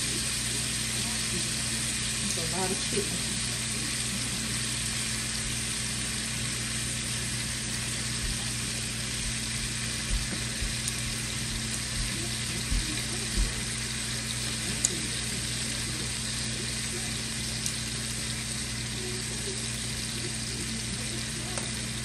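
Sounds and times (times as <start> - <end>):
bacon sizzling in a skillet: 0.0 - 22.0
steady low hum: 0.0 - 22.0
soft low thumps: 9.2 - 13.6.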